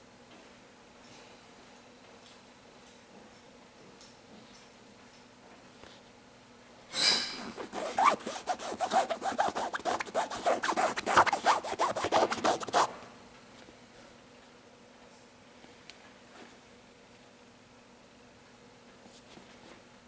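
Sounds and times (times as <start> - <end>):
fingers scratching fabric: 7.4 - 12.9.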